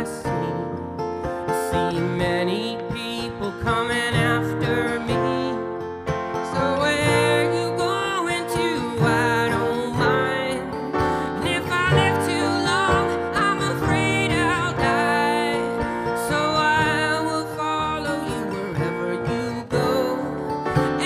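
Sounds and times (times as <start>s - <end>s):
acoustic folk string band: 0.0s - 21.0s.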